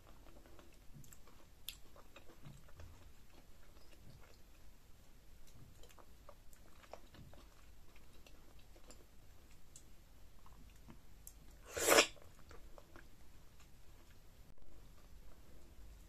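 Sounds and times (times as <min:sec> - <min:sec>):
soft chewing and lip smacks: 0:00.0 - 0:16.0
loud short slurp: 0:11.7 - 0:12.2.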